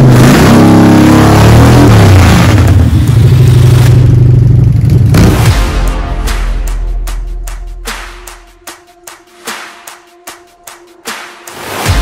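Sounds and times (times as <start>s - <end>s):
loud motorcycle engine revving: 0.0s - 5.6s.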